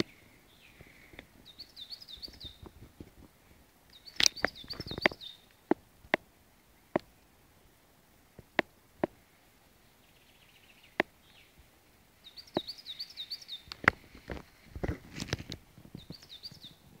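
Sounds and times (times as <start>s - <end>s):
songbird chirping: 0.0s - 17.0s
sharp snaps or knocks: 4.1s - 6.2s.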